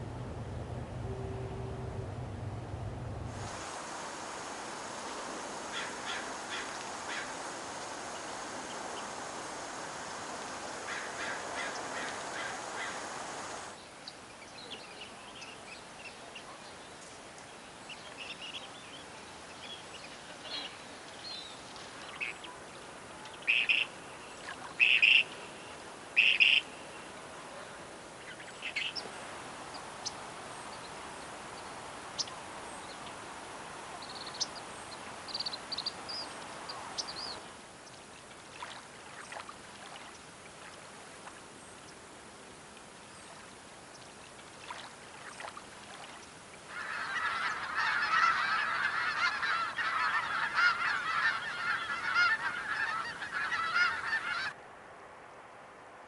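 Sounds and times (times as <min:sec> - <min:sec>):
flock of geese honking: 0:05.6 - 0:07.5, 0:10.8 - 0:13.7, 0:46.7 - 0:54.6
short bird calls: 0:24.8 - 0:27.0.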